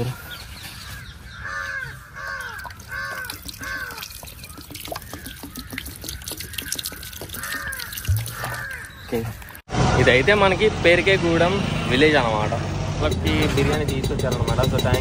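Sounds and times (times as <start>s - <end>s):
bird calling: 0.0s - 9.6s
water pouring onto soil: 2.4s - 9.6s.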